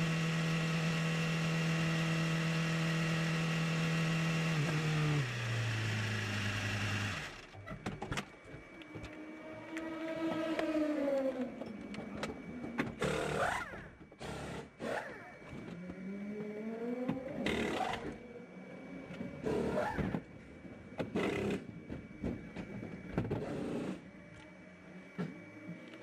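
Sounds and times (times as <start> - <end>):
steady high whine: 0.0 - 26.0
pneumatic wheel guns whirring: 12.8 - 15.8, 19.4 - 20.3.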